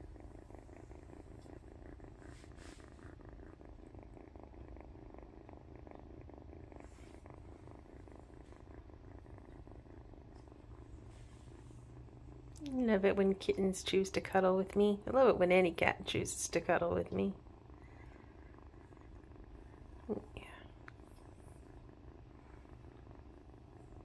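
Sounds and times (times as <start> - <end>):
kitten purring: 0.0 - 24.0.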